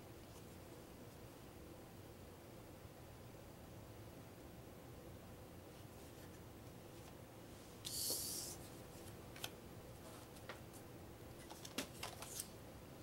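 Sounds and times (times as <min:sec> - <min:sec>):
card sliding across deck: 0:07.8 - 0:08.7.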